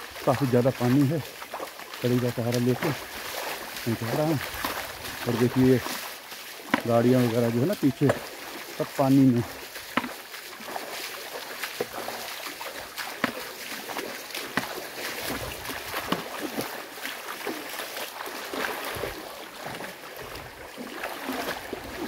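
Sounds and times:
footsteps splashing in water: 0.0 - 22.0
water washing: 0.0 - 22.0.

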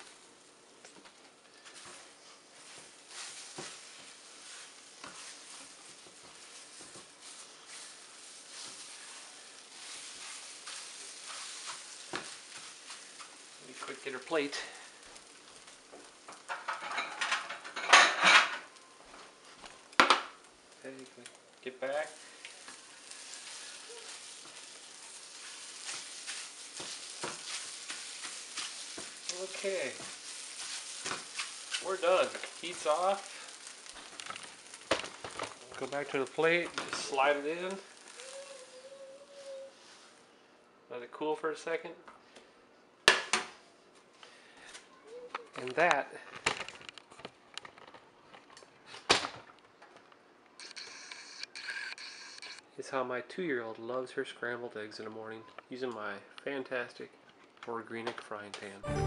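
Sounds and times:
eggs sizzling in a frying pan: 0.0 - 40.4, 50.5 - 52.6
spatula scraping a pan: 2.6 - 13.5, 22.6 - 33.9.

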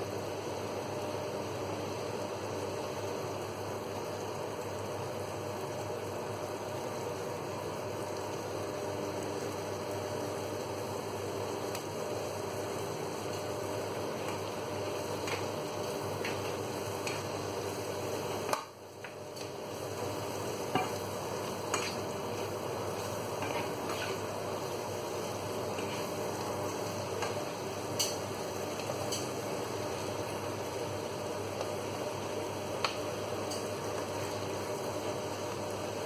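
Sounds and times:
fish and vegetables sizzling: 0.1 - 36.0
spatula tapping pan: 20.7 - 21.0.

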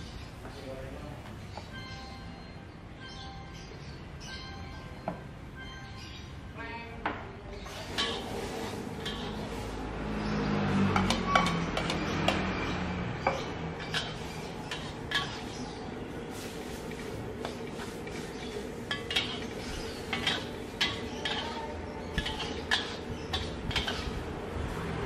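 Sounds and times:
metal spatula scraping a wok: 7.6 - 10.4, 11.0 - 24.8
food sizzling: 16.3 - 24.4.

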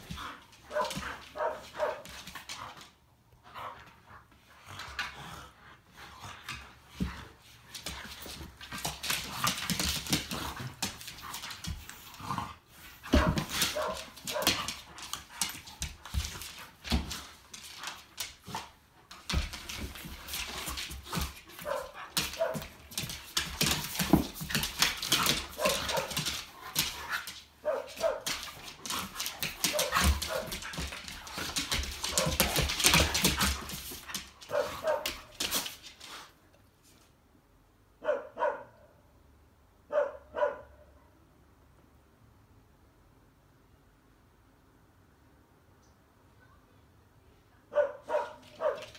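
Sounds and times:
claws clattering on wood floor: 13.0 - 36.1.

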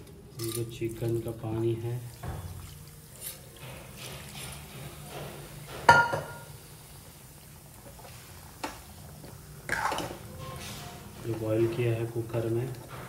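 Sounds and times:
liquid pouring: 0.3 - 4.6
metal cookware clink: 0.4 - 0.7, 5.9 - 6.5.

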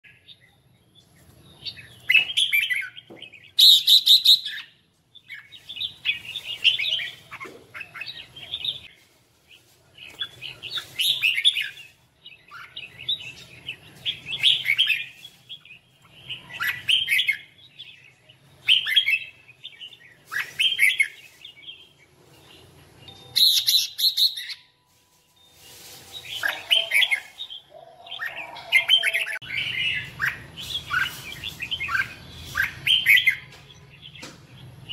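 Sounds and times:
bird warbling song: 25.4 - 34.9
harsh bird call bursts: 25.7 - 33.4.

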